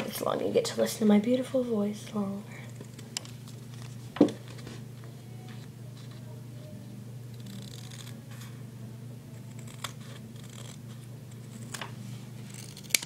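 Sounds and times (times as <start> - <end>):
low hum: 1.3 - 13.0
scissors snipping tape: 9.4 - 11.9, 12.5 - 13.0.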